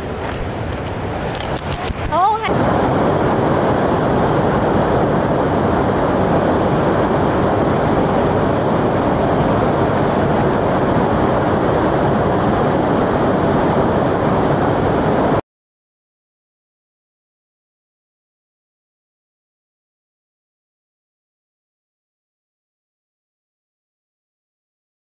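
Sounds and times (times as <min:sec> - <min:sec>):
river rushing over rapids: 0:00.0 - 0:15.4.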